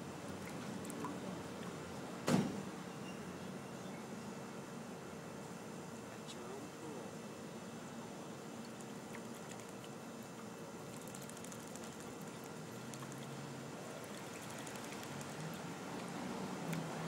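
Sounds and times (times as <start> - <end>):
steady background hiss: 0.0 - 17.0
bird splashing in water: 10.9 - 15.6.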